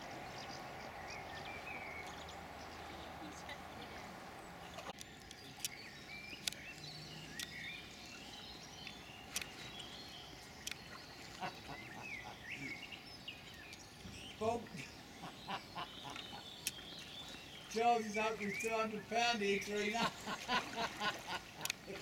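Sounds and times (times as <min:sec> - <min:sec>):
low outdoor hiss: 0:00.0 - 0:22.0
songbirds chirping: 0:00.0 - 0:22.0.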